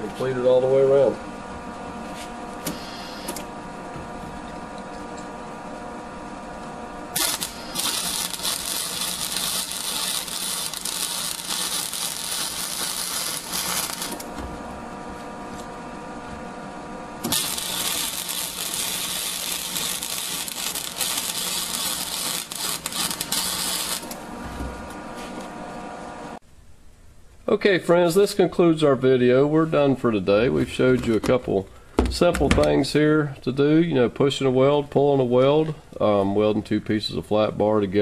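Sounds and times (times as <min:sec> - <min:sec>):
welder hum: 0:00.0 - 0:26.4
welding arc crackling: 0:02.6 - 0:03.5, 0:07.1 - 0:14.4, 0:17.2 - 0:24.3.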